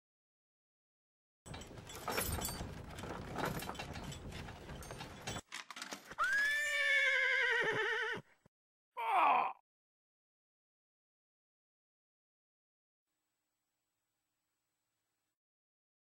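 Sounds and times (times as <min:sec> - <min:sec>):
hoofbeats clip-clopping: 0:01.5 - 0:05.4
rattling noise: 0:01.5 - 0:06.2
horse whinny: 0:06.2 - 0:08.3.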